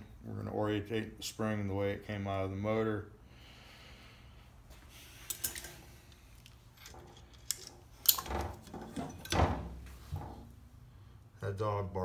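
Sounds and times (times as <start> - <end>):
metal parts clinking and clanking: 5.2 - 9.8.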